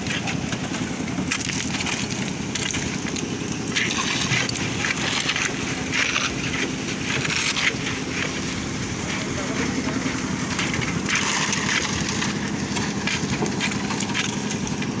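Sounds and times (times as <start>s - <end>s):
concrete mixer droning: 0.0s - 15.0s
wet concrete scraping: 0.0s - 15.0s.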